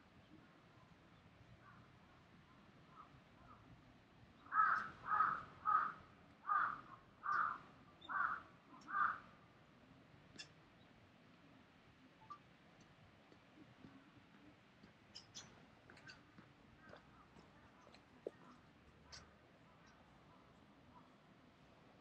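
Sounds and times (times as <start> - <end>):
crow cawing: 4.5 - 9.2.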